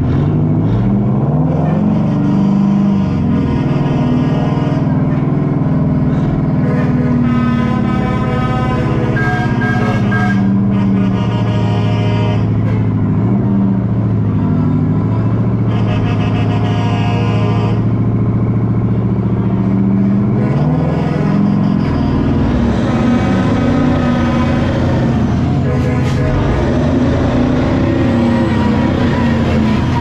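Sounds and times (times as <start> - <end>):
diesel truck engine running: 0.0 - 30.0.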